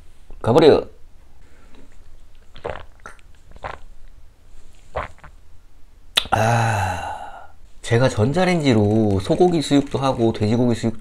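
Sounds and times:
wet mouth and swallowing sounds: 1.8 - 4.2, 4.9 - 5.4.

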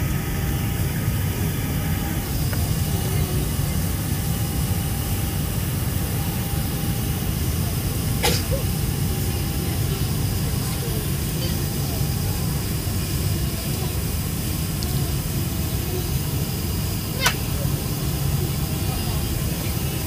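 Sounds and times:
faint whine tones: 0.0 - 20.0
jet engine cabin rumble: 0.0 - 20.0.

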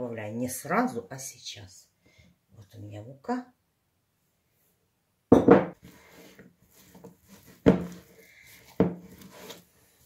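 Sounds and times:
soft rubbing of dough by hand: 5.8 - 10.0.

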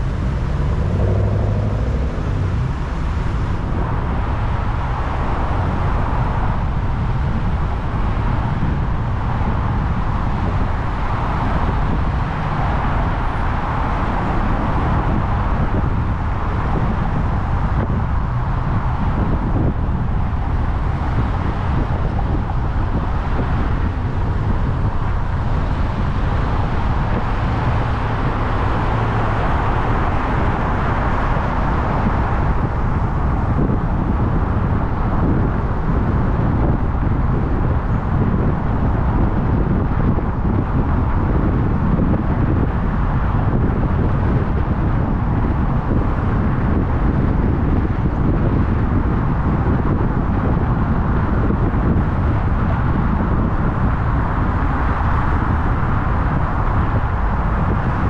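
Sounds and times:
car engine and tyres rumbling: 0.0 - 58.0.

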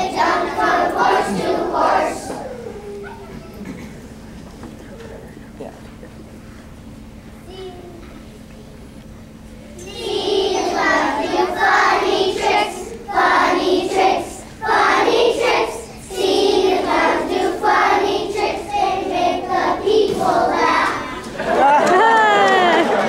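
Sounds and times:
children singing together: 0.0 - 3.9, 9.8 - 21.6.

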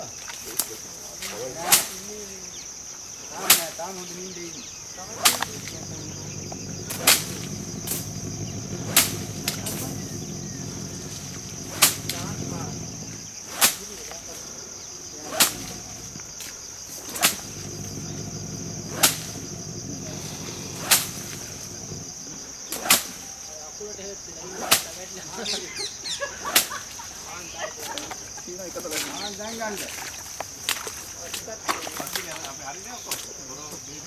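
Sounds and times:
insects droning: 0.0 - 34.0
stick whip-like cracks: 1.2 - 2.1, 5.2 - 5.8, 6.9 - 8.1, 8.9 - 9.9, 11.6 - 12.2, 13.5 - 14.2, 15.2 - 15.9, 17.0 - 17.6, 18.9 - 19.4, 20.7 - 21.5, 22.7 - 23.3, 24.6 - 25.0, 26.5 - 26.8.

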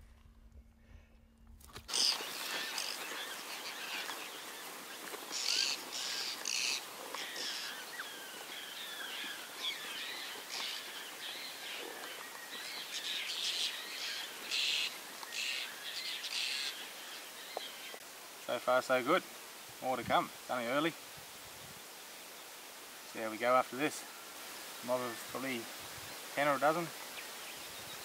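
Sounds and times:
birds chirping and calling: 1.9 - 18.0
harsh bird calls: 1.9 - 18.0.

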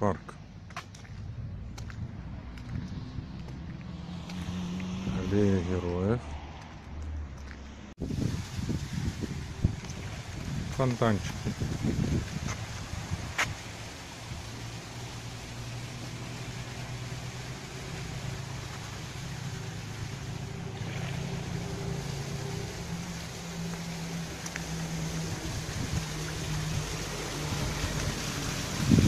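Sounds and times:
fountain splashing into basin: 8.0 - 29.0.

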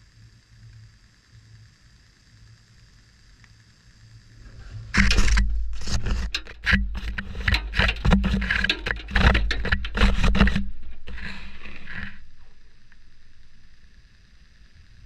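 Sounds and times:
washing machine drum rumble: 4.9 - 13.8.

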